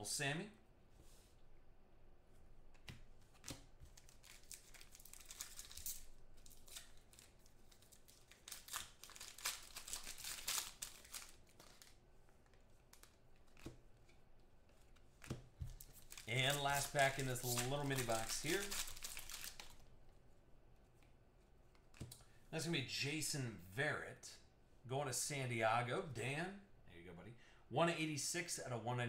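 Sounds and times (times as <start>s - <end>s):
foil wrapper crinkling and tearing: 3.9s - 12.0s, 15.7s - 19.9s
cards clicking: 14.9s - 19.8s.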